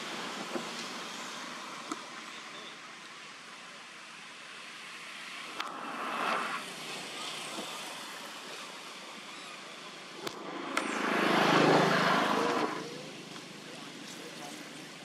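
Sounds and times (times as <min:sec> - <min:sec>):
vehicles passing: 0:04.4 - 0:15.0
faint sharp clicks: 0:05.5 - 0:05.8, 0:10.2 - 0:10.9.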